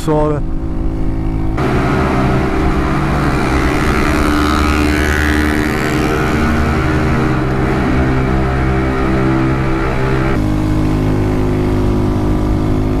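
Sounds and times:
motorcycle engine cruising in tunnel: 0:00.0 - 0:13.0.

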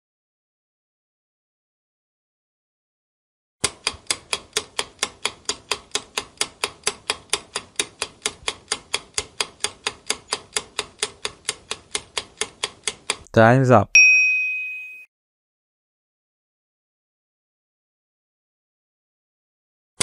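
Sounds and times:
clock ticking: 0:03.6 - 0:13.3.

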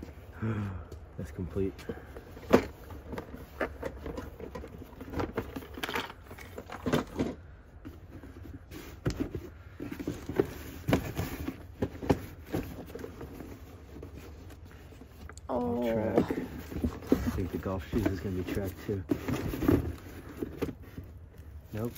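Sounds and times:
cardboard boxes knocking and scraping: 0:01.9 - 0:15.2, 0:15.8 - 0:21.9.

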